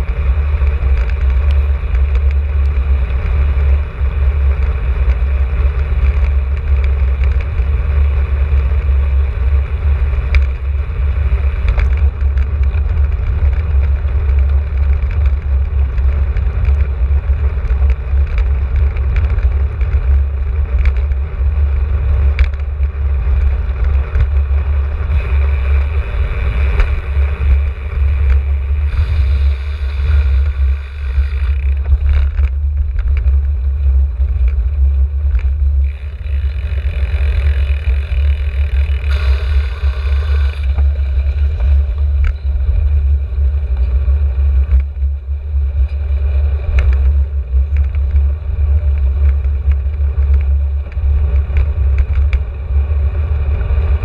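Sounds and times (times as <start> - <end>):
wind buffeting microphone: 0.0 - 54.0
tyre hiss on wet road: 28.8 - 31.3.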